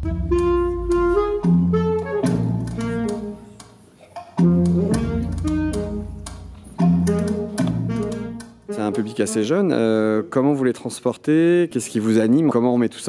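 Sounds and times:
instrumental music with bass line: 0:00.0 - 0:03.7, 0:04.3 - 0:09.6.

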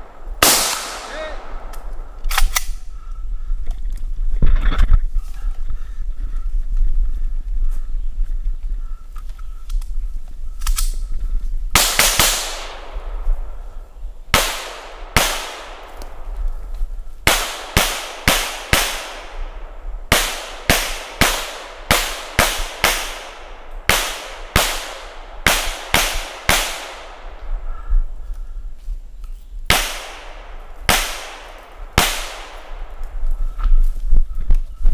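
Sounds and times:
pistol shots with ringing echo: 0:00.0 - 0:02.8, 0:11.8 - 0:13.7, 0:14.3 - 0:16.4, 0:17.2 - 0:27.6, 0:29.7 - 0:33.2.

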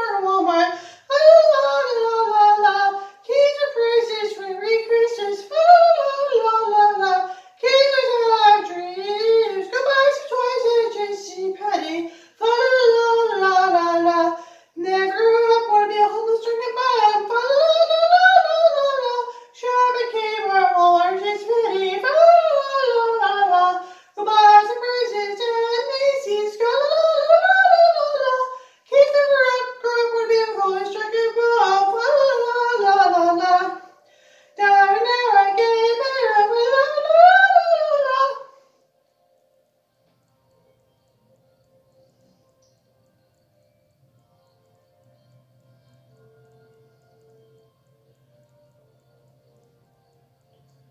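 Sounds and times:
person singing unaccompanied: 0:00.0 - 0:38.6.

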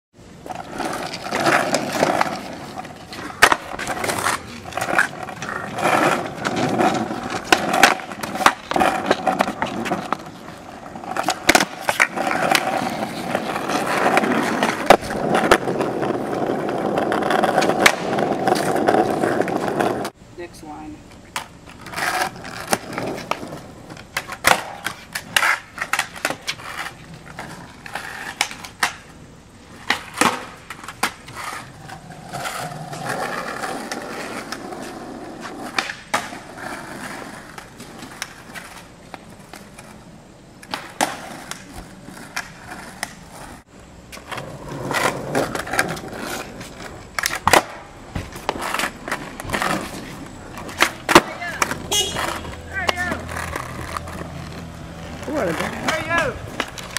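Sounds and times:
skateboard wheels rolling on asphalt: 0:00.2 - 0:56.9
skateboard landing clacks: 0:16.9 - 0:20.1, 0:21.3 - 0:27.4, 0:29.8 - 0:31.4, 0:35.4 - 0:36.5, 0:40.6 - 0:43.2, 0:44.1 - 0:54.2.

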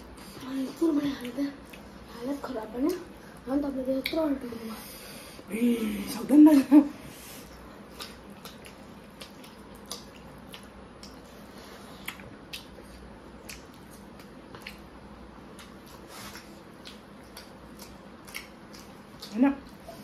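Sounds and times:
wet chewing and squishing: 0:07.5 - 0:20.0.

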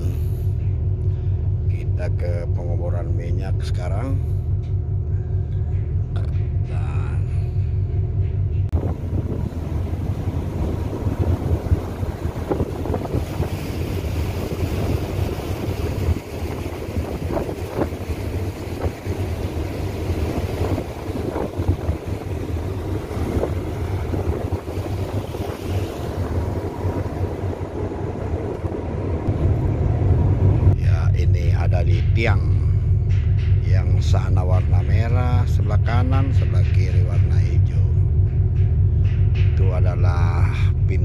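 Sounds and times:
ship engine rumbling: 0:00.0 - 0:41.0
wind buffeting microphone: 0:08.6 - 0:41.0
water rushing along hull: 0:08.7 - 0:31.6.

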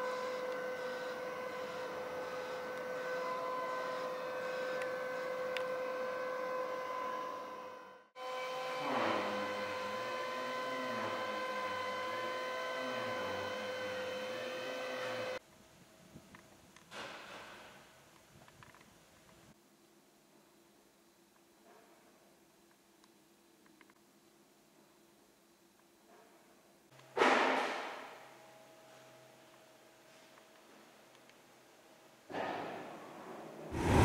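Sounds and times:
machine hum with high whine: 0:00.0 - 0:15.4.

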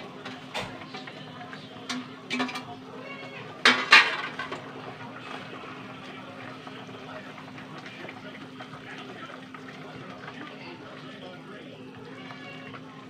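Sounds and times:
metal pans clinking and clattering: 0:00.0 - 0:02.7, 0:03.3 - 0:04.8.

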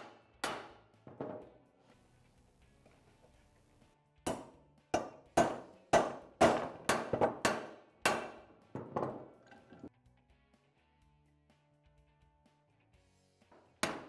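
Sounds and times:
hammer striking metal: 0:00.0 - 0:01.4, 0:04.3 - 0:09.1, 0:13.8 - 0:14.0.

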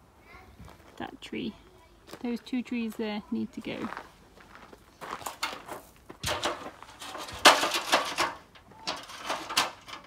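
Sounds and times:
aluminium stepladder knocks and scrapes: 0:05.2 - 0:10.0.

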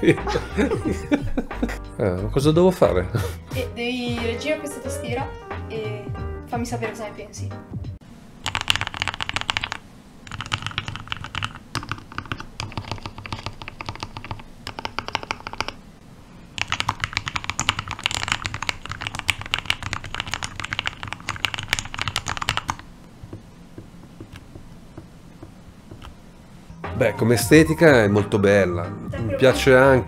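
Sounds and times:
mechanical keyboard typing: 0:08.4 - 0:15.8, 0:16.6 - 0:22.8.

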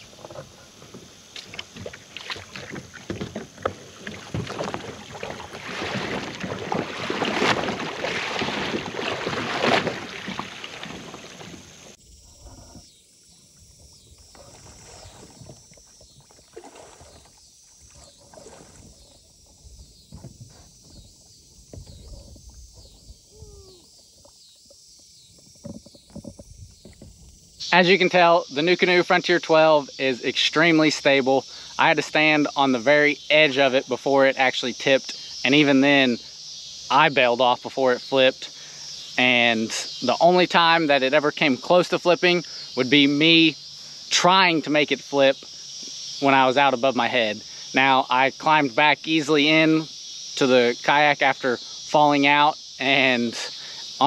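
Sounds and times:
water lapping: 0:00.0 - 0:24.4
water splashing around kayak: 0:00.0 - 0:29.6.

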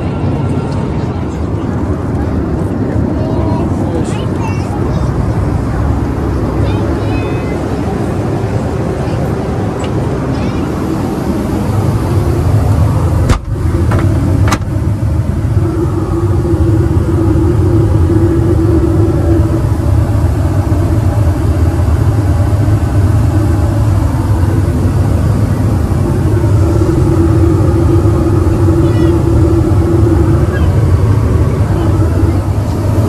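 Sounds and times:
airplane cabin rumble: 0:00.0 - 0:33.0
constant hum: 0:00.0 - 0:33.0.

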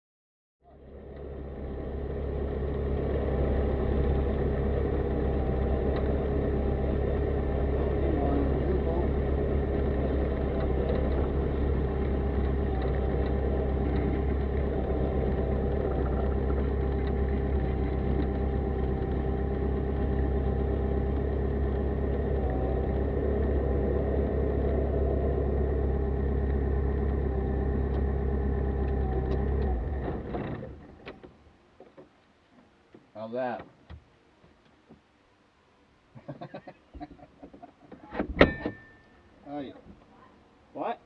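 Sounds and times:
light aircraft engine idling: 0:00.7 - 0:31.3.

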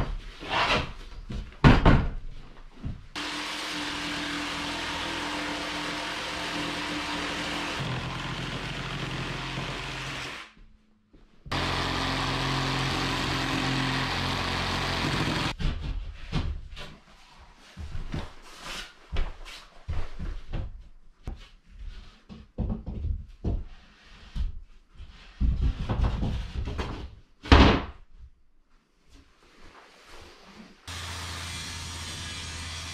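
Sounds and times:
wooden knocks and thuds: 0:01.3 - 0:03.1, 0:22.3 - 0:23.7, 0:25.3 - 0:28.0
jigsaw cutting board: 0:03.2 - 0:10.6, 0:11.5 - 0:15.6, 0:30.9 - 0:32.9.

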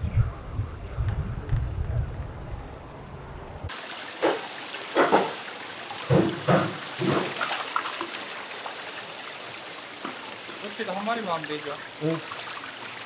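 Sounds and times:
loud splashes and knocks: 0:03.7 - 0:08.3
water running and trickling: 0:03.7 - 0:13.0.

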